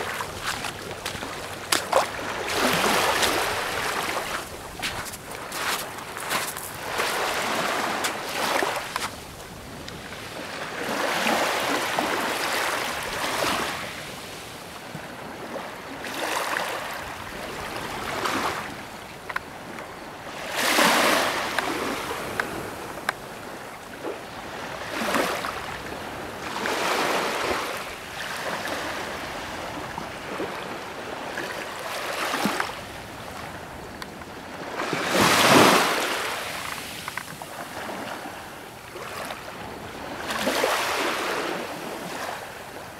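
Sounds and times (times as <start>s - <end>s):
sea water washing and breaking: 0.0s - 9.1s.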